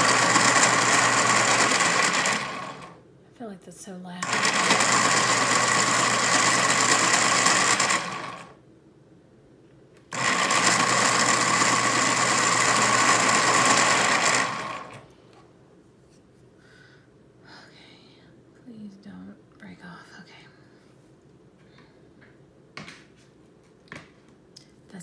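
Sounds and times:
electric pencil sharpener whirring: 0.0s - 3.0s, 4.2s - 8.6s, 10.1s - 15.1s.

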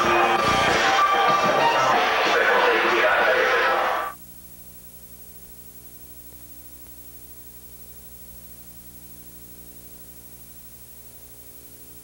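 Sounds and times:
electrical hum: 0.0s - 12.0s
constant hiss: 3.1s - 12.0s.

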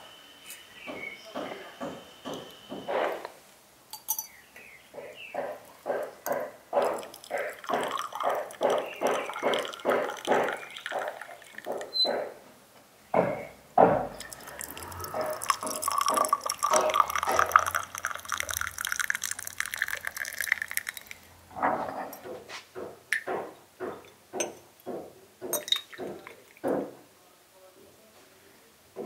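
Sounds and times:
water dripping into glass: 6.3s - 11.9s, 14.1s - 21.3s, 25.5s - 26.7s
water stream filling glass: 6.8s - 11.9s, 14.1s - 21.4s, 25.5s - 26.7s
knock: 13.2s - 14.1s, 21.6s - 27.0s.

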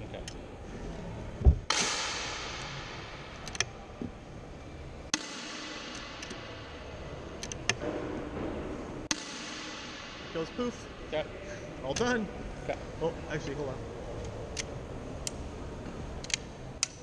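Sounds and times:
air rifle mechanism clicks: 3.4s - 3.7s, 7.4s - 7.8s.

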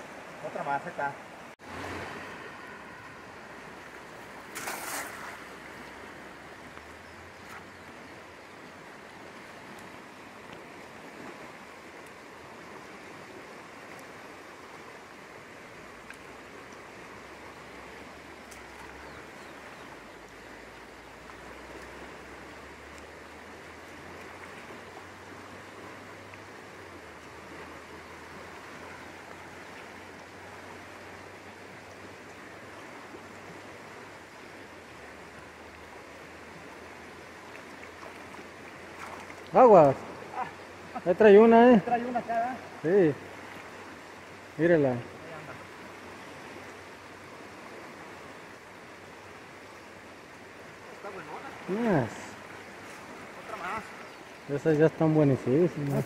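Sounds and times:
river rushing over rapid: 0.0s - 56.0s
faint ticks: 16.0s - 16.8s.

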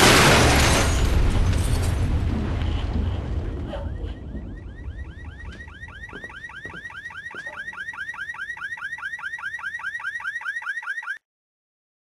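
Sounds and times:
car alarm warbling: 3.4s - 11.2s.

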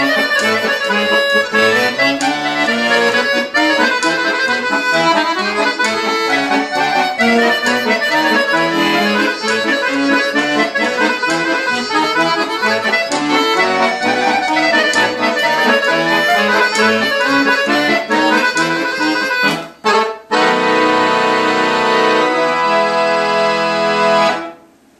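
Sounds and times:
accordion playing fast tune: 0.0s - 24.6s.

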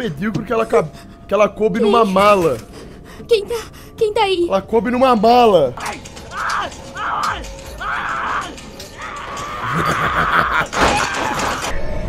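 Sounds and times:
person screaming: 5.8s - 11.6s.

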